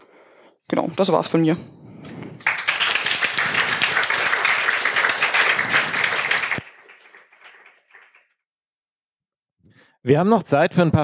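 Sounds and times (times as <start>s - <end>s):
audience applauding: 2.4s - 8.4s.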